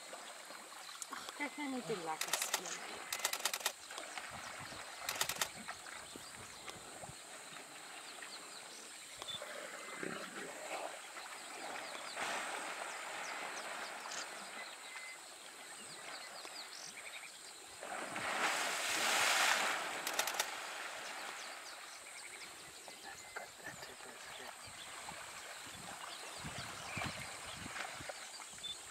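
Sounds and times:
small birds chirping: 0:00.8 - 0:09.5, 0:20.1 - 0:28.9
water sloshing and splashing: 0:17.8 - 0:22.0.

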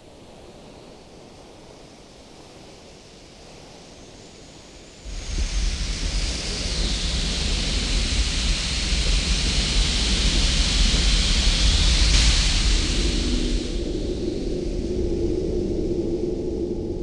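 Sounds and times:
rushing hiss: 0:04.9 - 0:15.0
deep rumble: 0:05.1 - 0:17.0.

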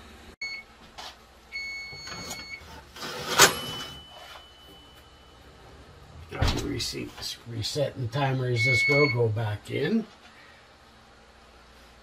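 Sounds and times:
oven timer beep: 0:00.4 - 0:00.8, 0:01.5 - 0:02.8, 0:03.4 - 0:05.6, 0:08.4 - 0:09.4
faint steady high tone: 0:03.4 - 0:05.6, 0:08.3 - 0:09.4.

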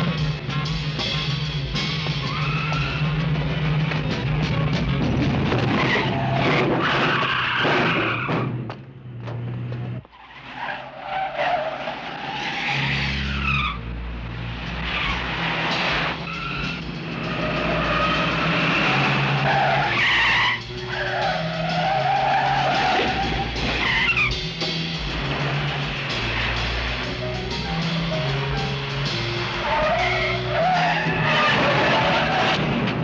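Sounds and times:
car engines running hard: 0:00.0 - 0:33.0
car tyres squealing: 0:01.8 - 0:03.8, 0:05.5 - 0:08.7, 0:09.4 - 0:27.2, 0:27.8 - 0:33.0.

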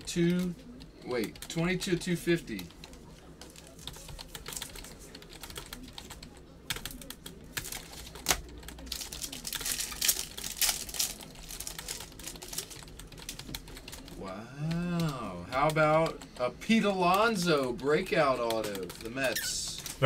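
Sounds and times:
foil wrapping crinkling and tearing: 0:07.7 - 0:12.8.

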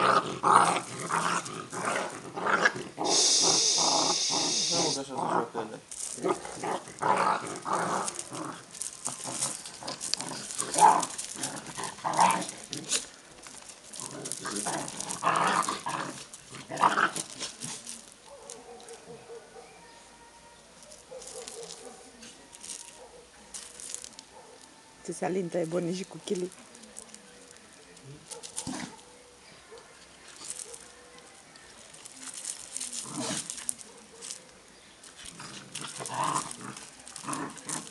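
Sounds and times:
dogs play-fighting noises: 0:00.0 - 0:19.7, 0:27.4 - 0:31.0, 0:31.6 - 0:37.9
paws scuffling on gravel: 0:05.8 - 0:20.0, 0:20.7 - 0:37.9.

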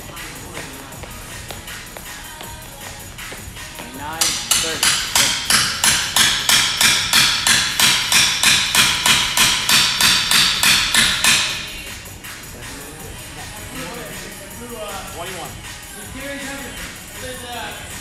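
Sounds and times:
hammer-like strikes: 0:04.2 - 0:11.9.

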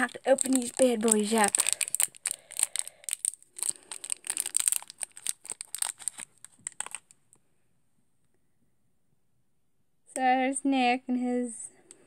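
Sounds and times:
plastic wrapper crinkling and tearing: 0:00.0 - 0:07.2.

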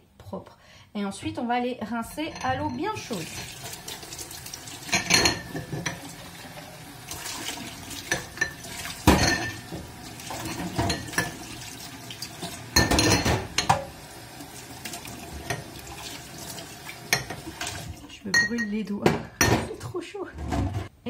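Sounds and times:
tap water running in sink: 0:02.7 - 0:18.1
glass jars clinking: 0:04.9 - 0:06.0, 0:08.1 - 0:09.7, 0:10.6 - 0:11.4, 0:12.8 - 0:13.8, 0:18.3 - 0:18.8.

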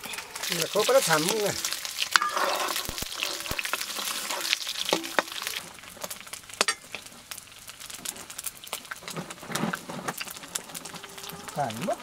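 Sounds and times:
metal ladle scraping a pan: 0:00.0 - 0:05.7
food sizzling in a wok: 0:00.0 - 0:12.0.

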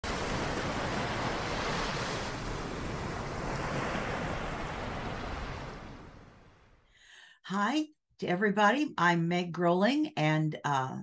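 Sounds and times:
ocean waves surf: 0:00.0 - 0:06.8.

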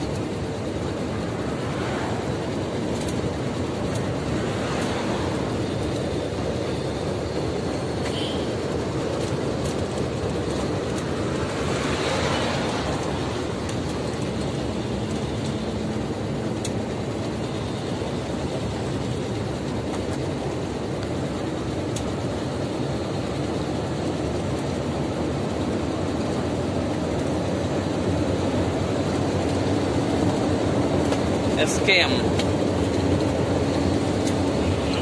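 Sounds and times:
lorry engine and road noise: 0:00.0 - 0:35.0.

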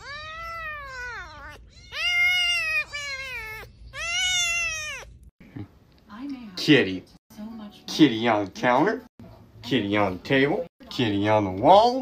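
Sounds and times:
kitten mewing: 0:00.0 - 0:05.2.

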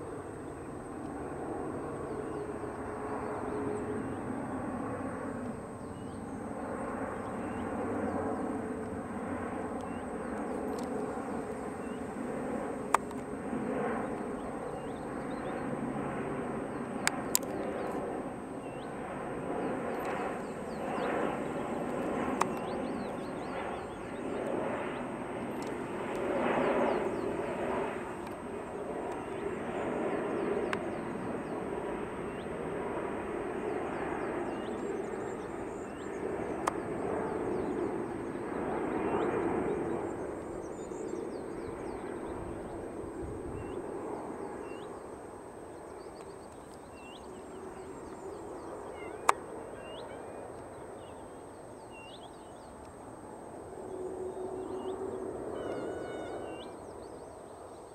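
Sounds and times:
airliner engines passing over: 0:00.0 - 0:57.9
sharp clicks: 0:12.8 - 0:13.3, 0:21.8 - 0:22.8.

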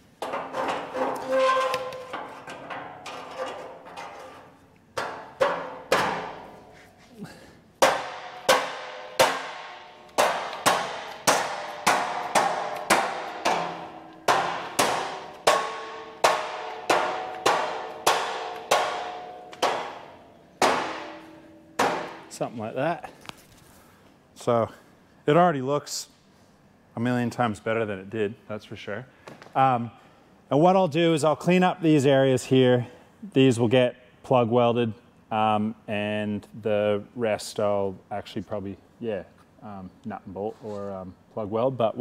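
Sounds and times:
mallet striking steel: 0:07.8 - 0:22.4
metal ringing: 0:07.8 - 0:22.5.

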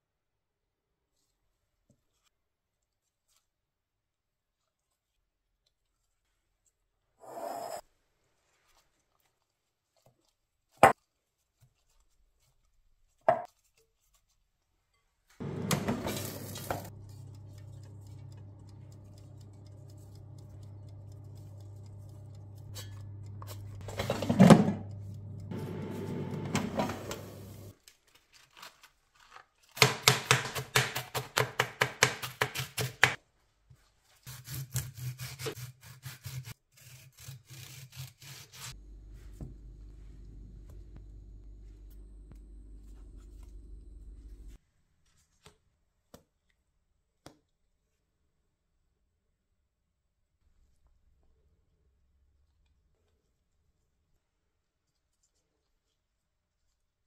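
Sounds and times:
air fryer fan humming: 0:15.4 - 0:27.8, 0:38.8 - 0:44.6
knife chopping on cutting board: 0:29.8 - 0:33.2
knife slicing tomato: 0:34.2 - 0:38.8.

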